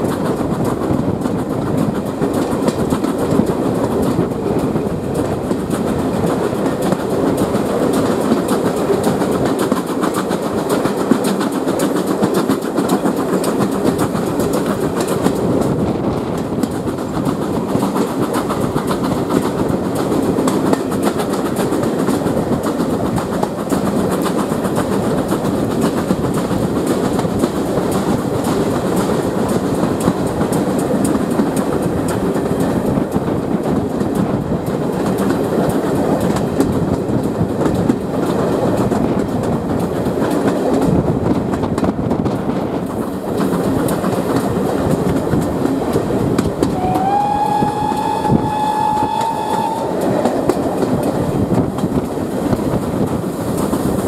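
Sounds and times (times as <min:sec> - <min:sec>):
train wheels rumbling on track: 0:00.0 - 0:54.0
steam locomotive whistle: 0:46.7 - 0:50.8.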